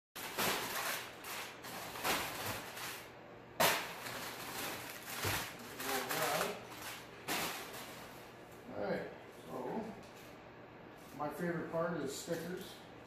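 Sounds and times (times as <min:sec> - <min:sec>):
paper crackle: 0:00.2 - 0:03.1, 0:03.7 - 0:07.9
packing paper rustling and crinkling: 0:00.2 - 0:08.1.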